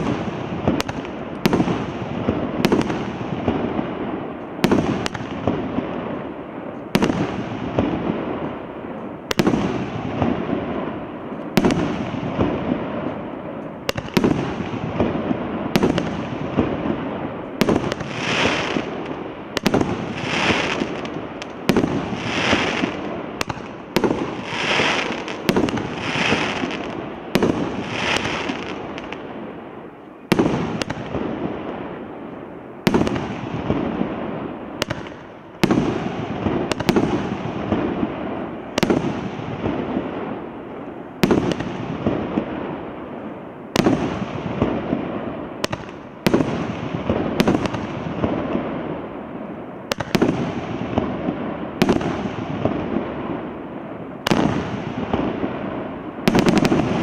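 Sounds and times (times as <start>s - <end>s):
firework shots firing: 0.0s - 29.6s, 30.3s - 32.0s, 32.8s - 40.5s, 41.2s - 43.0s, 43.7s - 49.1s, 49.8s - 53.6s, 54.2s - 57.0s
firework hissing bursts: 17.6s - 29.1s.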